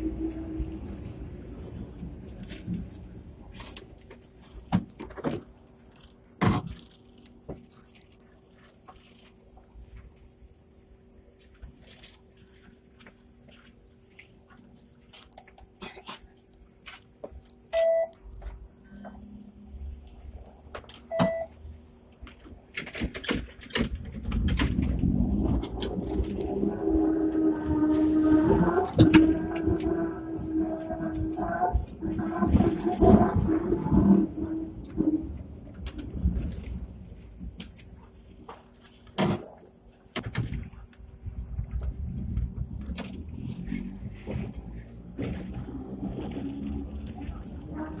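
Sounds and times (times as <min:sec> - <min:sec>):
tram low hum: 0:00.0 - 0:06.4, 0:09.0 - 0:23.0, 0:23.8 - 0:38.6, 0:40.6 - 0:48.0
fare reader beep: 0:17.7 - 0:18.1, 0:21.1 - 0:21.5.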